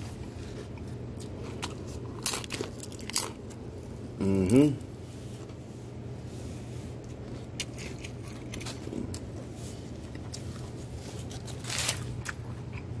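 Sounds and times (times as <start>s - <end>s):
steady low hum: 0.0s - 13.0s
wrappers crinkling and rustling: 10.6s - 12.2s.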